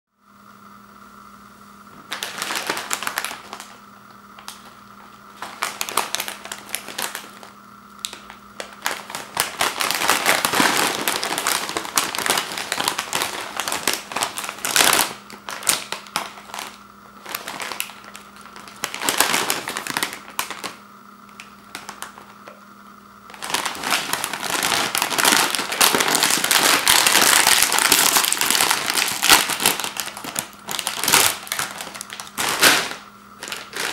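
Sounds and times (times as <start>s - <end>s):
chip bag crinkling: 2.0s - 22.5s, 23.2s - 33.9s.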